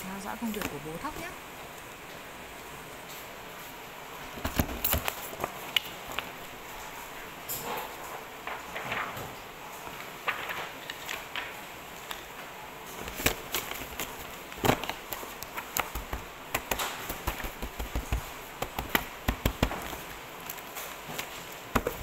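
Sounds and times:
paper rustling: 4.3s - 7.0s, 7.6s - 22.0s
paper stack knocking on desk: 14.6s - 20.1s, 21.7s - 22.0s.

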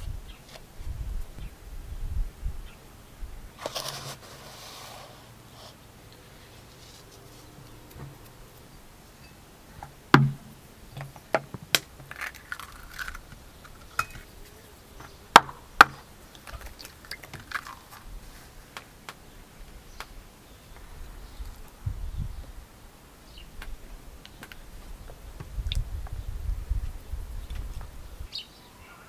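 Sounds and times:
eggs cracking on plastic bowl: 11.0s - 14.3s, 15.4s - 18.0s.

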